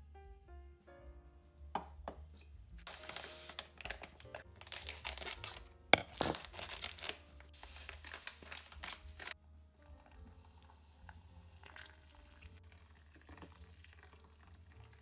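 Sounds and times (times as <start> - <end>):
seeds pouring into metal saucepan: 2.9 - 5.6, 6.2 - 9.4
plastic packet crinkling: 2.9 - 9.4.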